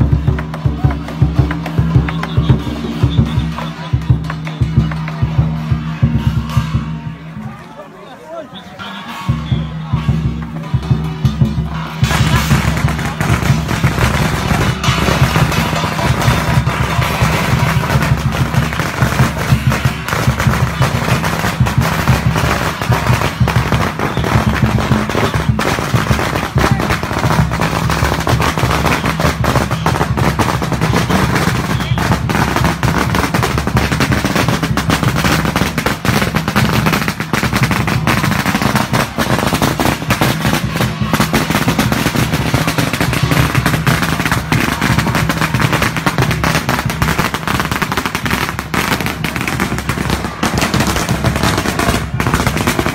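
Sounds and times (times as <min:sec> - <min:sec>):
firecrackers crackling: 0:00.0 - 0:52.9
music: 0:00.0 - 0:52.9.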